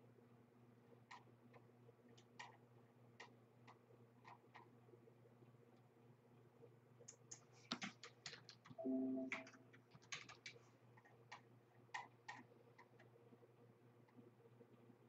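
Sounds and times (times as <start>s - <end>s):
keyboard typing clicks: 7.3s - 10.6s.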